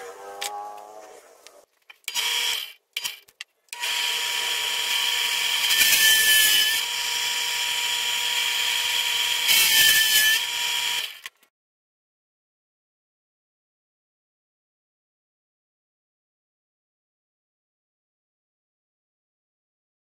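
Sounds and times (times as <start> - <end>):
drill bit boring into wood: 2.1 - 3.2, 3.8 - 11.3
drill press motor whine: 3.8 - 11.2.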